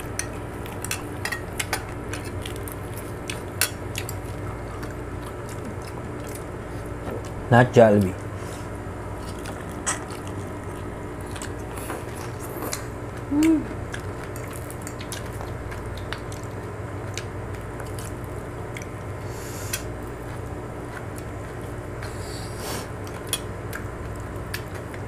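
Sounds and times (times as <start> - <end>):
chewing: 0.0 - 7.4, 8.0 - 25.0
person humming mm: 13.2 - 13.8.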